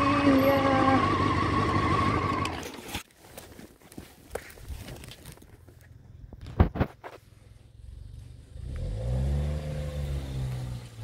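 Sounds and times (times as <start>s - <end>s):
motorcycle engine revving: 0.0s - 2.8s, 7.8s - 11.0s.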